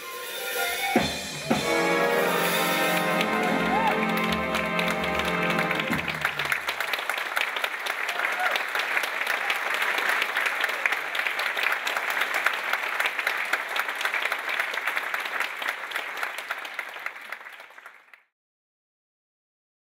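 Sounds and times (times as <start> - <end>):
audience applauding: 1.0 - 18.3.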